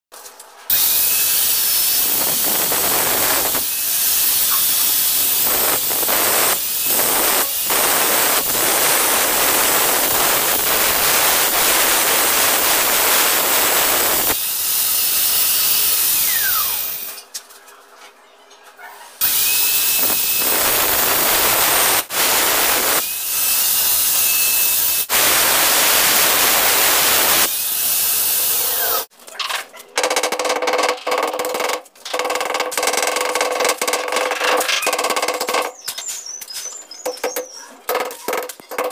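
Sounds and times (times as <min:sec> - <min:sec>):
electric drill boring into tile: 0:00.7 - 0:17.2, 0:19.2 - 0:29.1.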